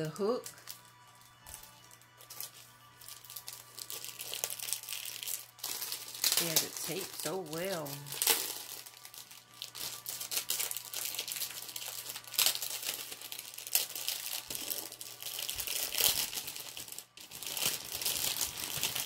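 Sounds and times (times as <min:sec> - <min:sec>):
paper and plastic wrapping crinkling: 0:00.0 - 0:19.0
wrapping ripping: 0:00.0 - 0:19.0.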